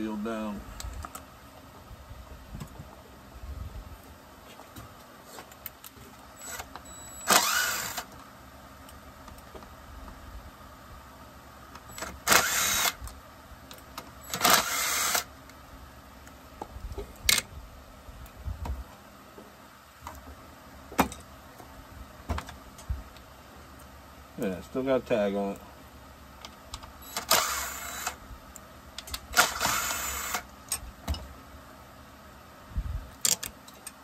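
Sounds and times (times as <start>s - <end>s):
cordless drill spinning: 6.4s - 8.1s, 11.9s - 13.0s, 14.3s - 15.3s, 27.1s - 28.2s, 29.3s - 30.5s.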